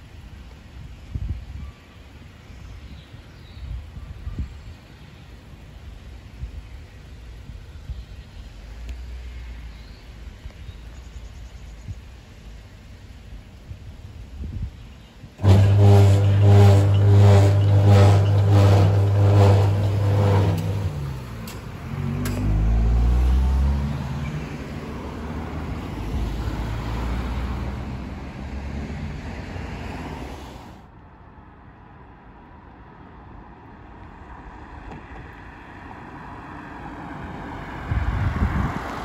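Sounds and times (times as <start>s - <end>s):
rail locomotive engine working hard: 15.2s - 22.6s
low rumble: 15.4s - 23.3s.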